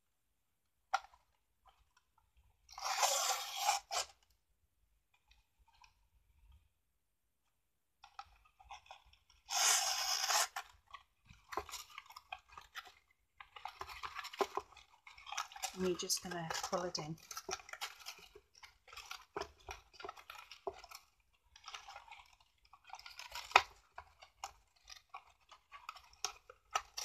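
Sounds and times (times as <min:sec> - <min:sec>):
cardstock crinkling and rustling: 0:08.0 - 0:27.0.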